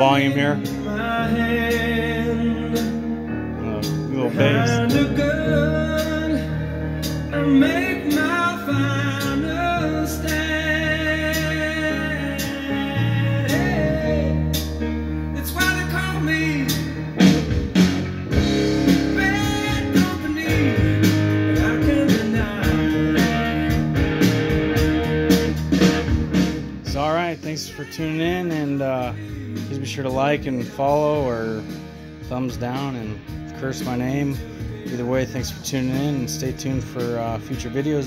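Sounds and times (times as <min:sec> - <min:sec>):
song with singing and guitar: 0:00.0 - 0:38.0.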